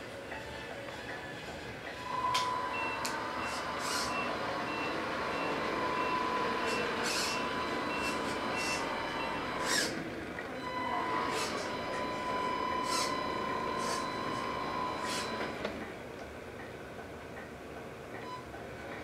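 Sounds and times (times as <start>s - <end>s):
reversing beeper: 2.0s - 15.6s
electronic truck engine running: 2.0s - 15.9s.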